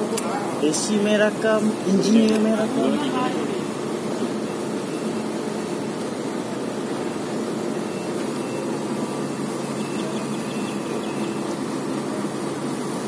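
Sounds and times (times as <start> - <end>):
construction machine engine droning: 0.0 - 13.0.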